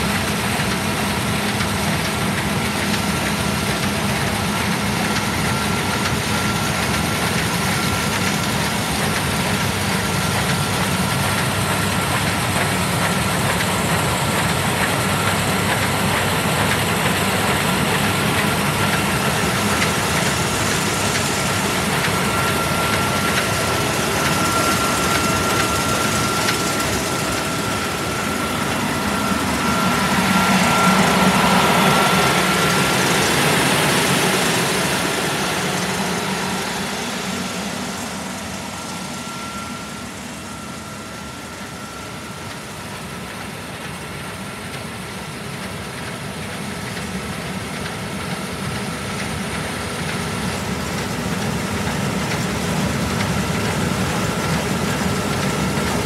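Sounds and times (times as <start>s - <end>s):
diesel engine idling: 0.0s - 41.7s
thin steady whine: 0.0s - 56.0s.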